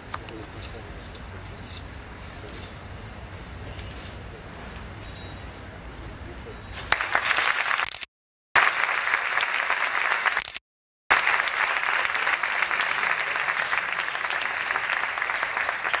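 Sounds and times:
audience applauding: 6.9 - 8.0, 8.6 - 16.0.

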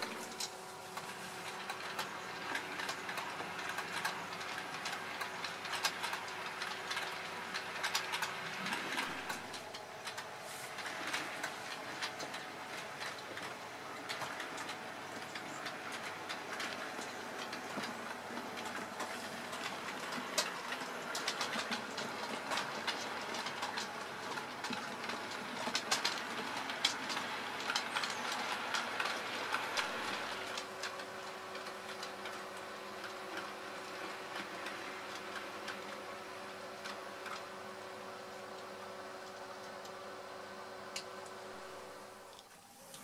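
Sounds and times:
model train wheels clicking over rails: 0.0 - 43.0.

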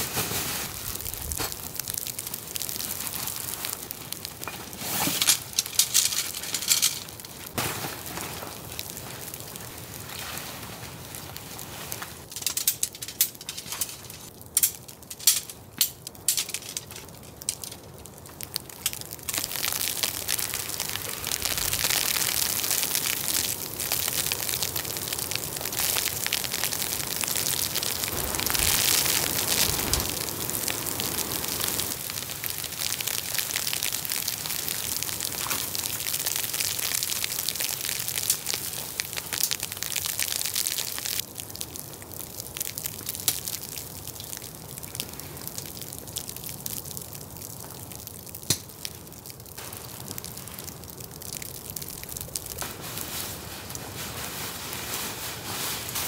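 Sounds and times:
hissing rustle of tarp: 0.0 - 1.6, 7.5 - 12.3, 20.3 - 33.5, 52.4 - 56.0.

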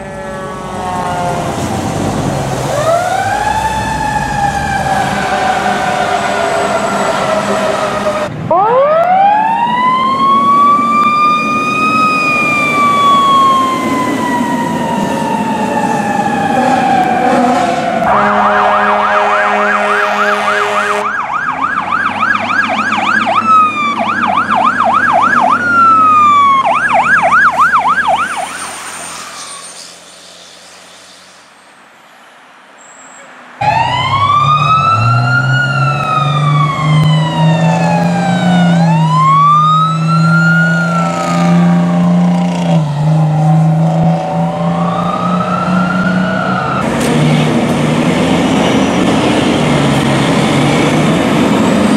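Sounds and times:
fire truck siren wailing: 0.0 - 29.8, 33.6 - 51.9
truck engine: 0.0 - 51.9
fast electronic siren yelp: 2.8 - 29.4, 33.6 - 43.2
horn blast: 16.6 - 21.2.

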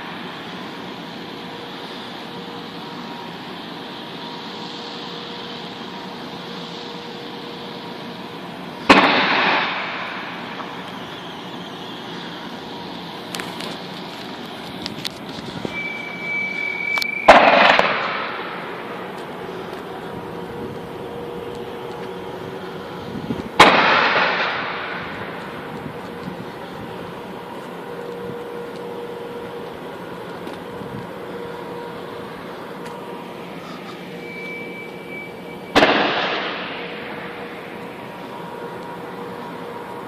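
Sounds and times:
steady hum: 0.0 - 40.0
heavy booming bangs: 8.9 - 10.4, 17.3 - 18.8, 23.5 - 25.7, 35.7 - 37.7
short steady whistle: 10.6 - 12.4, 15.6 - 17.4, 33.6 - 35.8.

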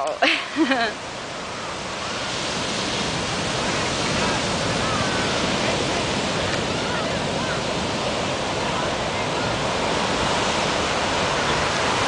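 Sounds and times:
ocean waves breaking on beach: 0.0 - 12.0
faint distant voices: 3.9 - 10.0.

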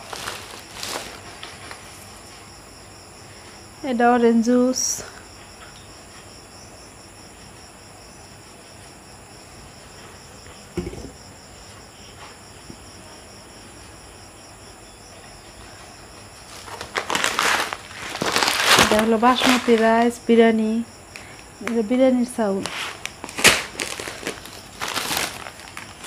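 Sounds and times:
plastic packaging rustling: 0.0 - 2.0, 16.4 - 20.2, 22.5 - 26.0
soft knock: 10.8 - 11.2.

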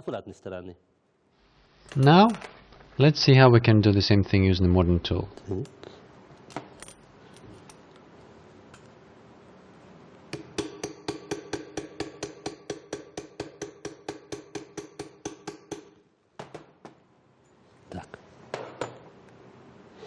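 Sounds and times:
hammer striking metal with ring: 10.3 - 16.0
knocks of handled work: 10.3 - 17.0, 18.5 - 19.1.

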